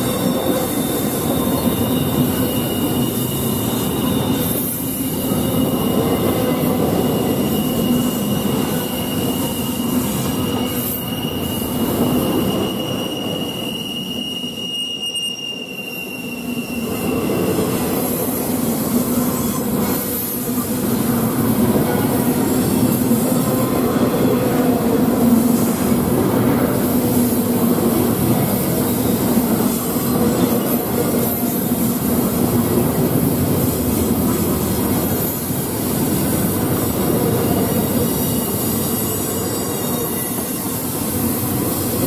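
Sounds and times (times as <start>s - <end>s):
high-pitched wheel squeal: 0.0s - 20.4s, 37.1s - 41.8s
train wheels rumbling on rails: 0.0s - 42.0s.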